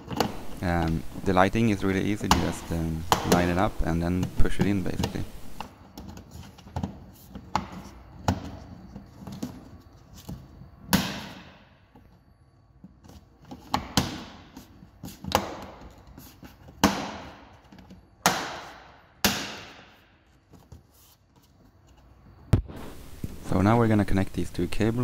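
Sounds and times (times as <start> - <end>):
plastic parts clicking and knocking: 0.0 - 10.5, 11.8 - 18.1.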